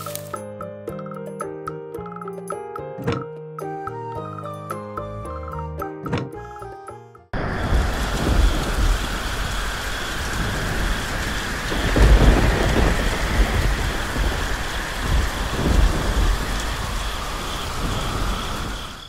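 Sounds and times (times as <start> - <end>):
rolling thunder: 7.4 - 19.0
steady rain: 7.4 - 19.0.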